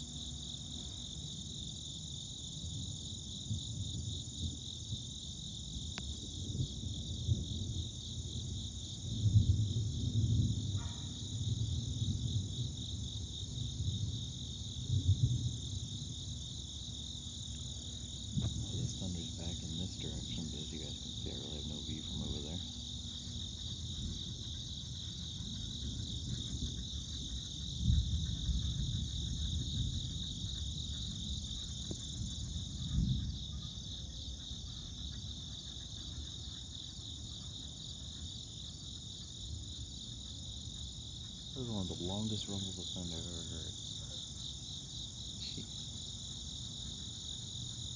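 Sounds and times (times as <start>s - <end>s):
insects chirping: 0.0s - 47.9s
thunder rumbling: 6.2s - 16.7s, 17.6s - 34.6s.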